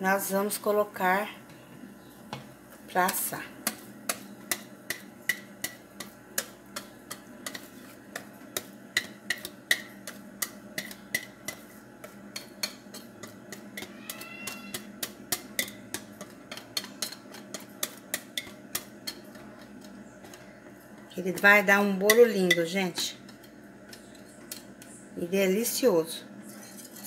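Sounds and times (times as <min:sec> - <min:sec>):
utensil clicking on bowl: 0:03.1 - 0:20.4.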